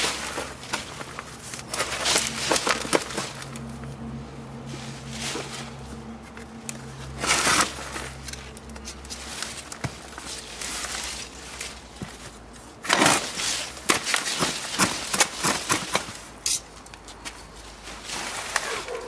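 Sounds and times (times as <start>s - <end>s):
soil rustling and spilling: 0.0s - 3.6s, 4.6s - 6.0s.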